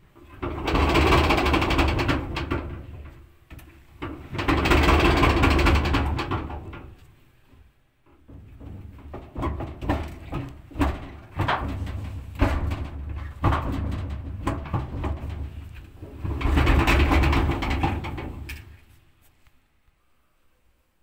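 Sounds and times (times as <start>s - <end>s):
hand scraping inside metal drum: 8.2s - 19.0s.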